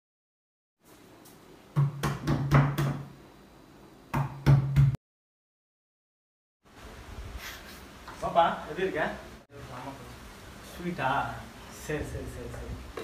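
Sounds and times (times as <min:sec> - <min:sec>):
knocking on wooden door: 0:01.8 - 0:03.0.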